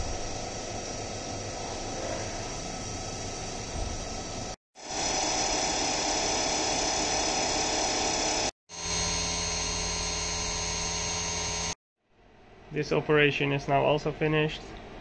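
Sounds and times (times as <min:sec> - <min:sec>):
high whine: 0:00.0 - 0:11.8
milling machine cutting metal: 0:04.8 - 0:11.8.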